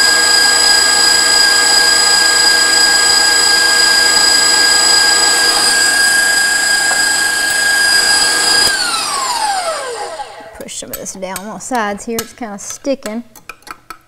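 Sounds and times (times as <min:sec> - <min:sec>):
electric mixer whining: 0:00.0 - 0:10.6.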